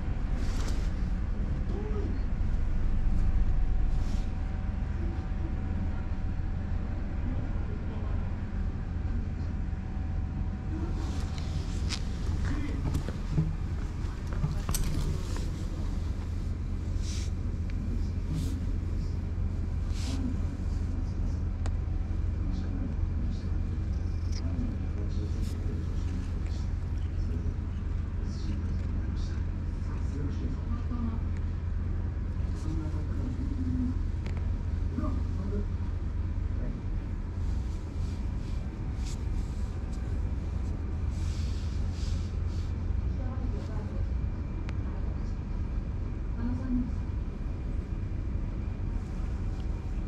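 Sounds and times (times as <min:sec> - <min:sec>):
steady low rumble: 0:00.0 - 0:50.0
hand stroking cat fur: 0:17.0 - 0:17.4, 0:19.8 - 0:20.8, 0:37.4 - 0:42.7.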